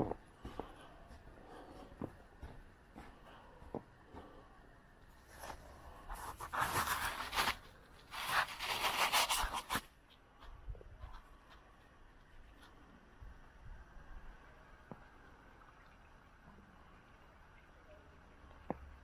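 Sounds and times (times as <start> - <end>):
footsteps crunching in snow: 5.2 - 9.9.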